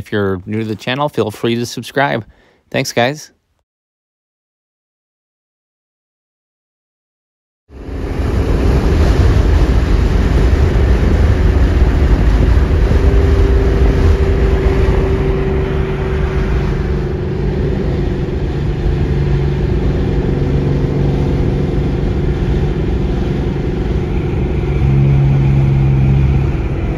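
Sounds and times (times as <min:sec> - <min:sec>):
tyre road noise: 0:07.8 - 0:26.9
car engine from inside cabin: 0:08.4 - 0:26.9.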